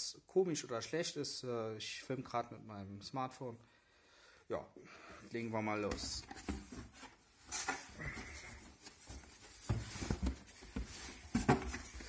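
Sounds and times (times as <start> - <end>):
cardboard scraping and rustling: 5.9 - 12.0.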